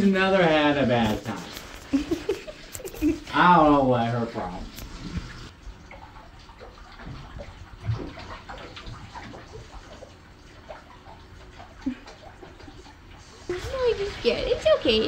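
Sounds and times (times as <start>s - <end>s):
squelching lather: 0.9s - 3.3s
small water splashes: 4.3s - 15.0s.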